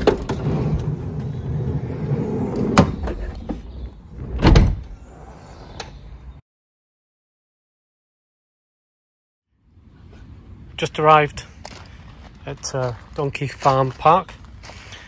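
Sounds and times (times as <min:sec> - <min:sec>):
sliding door rumbling: 0:00.0 - 0:05.9
door slammed shut: 0:04.2 - 0:05.0.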